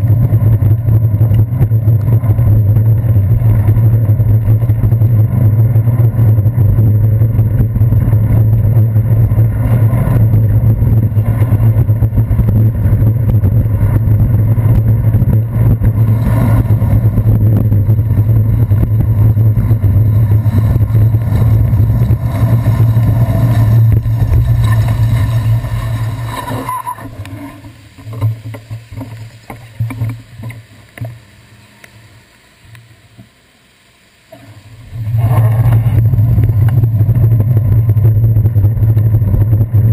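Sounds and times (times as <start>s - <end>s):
bicycle rolling over wet streets: 0.0s - 32.2s, 34.8s - 39.9s
passing traffic: 2.0s - 28.2s.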